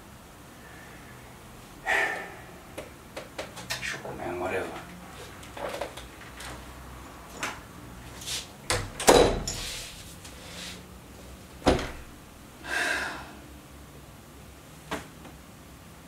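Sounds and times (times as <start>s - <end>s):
wooden door thudding shut: 8.7s - 9.5s, 11.6s - 12.2s.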